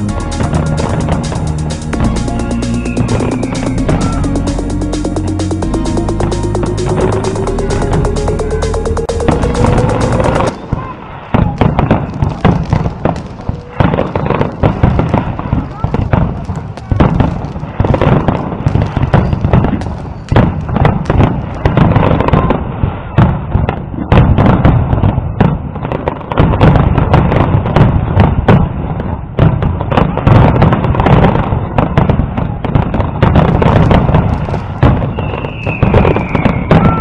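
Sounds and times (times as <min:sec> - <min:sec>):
low rumble: 0:00.0 - 0:10.6
falling firework whistle: 0:00.0 - 0:14.7, 0:18.2 - 0:23.4, 0:33.6 - 0:37.0
firework bursts and bangs: 0:00.0 - 0:37.0.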